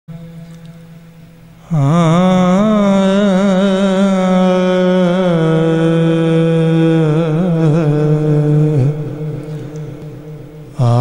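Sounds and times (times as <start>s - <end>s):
man singing through a microphone: 1.6s - 11.0s.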